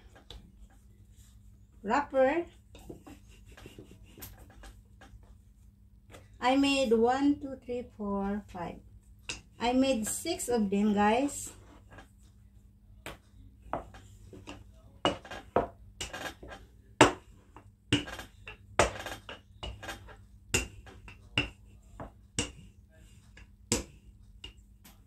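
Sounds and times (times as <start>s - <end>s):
rolling pin knocking on board: 17.9s - 22.7s.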